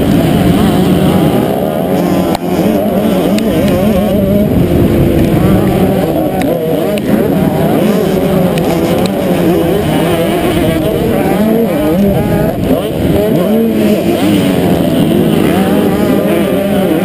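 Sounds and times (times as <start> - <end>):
motocross bike engines racing: 0.0 - 17.0.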